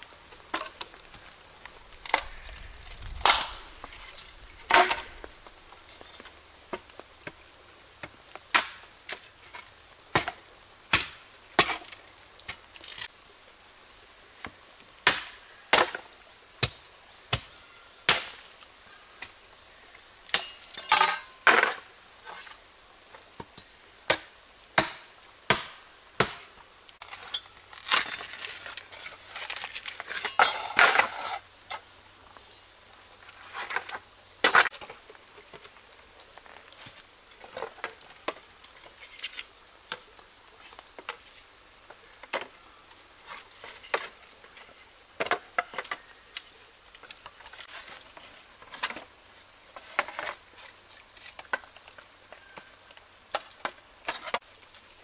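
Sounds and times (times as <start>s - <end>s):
bamboo pieces clattering: 0.4s - 7.4s, 20.3s - 22.6s, 27.0s - 31.9s, 33.2s - 35.8s, 43.2s - 55.0s.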